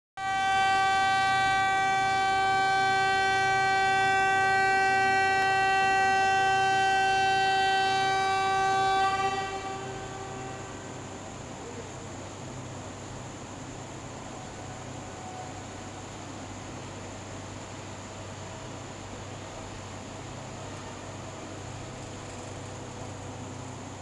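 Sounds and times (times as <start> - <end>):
train horn blast: 0.2 - 11.4.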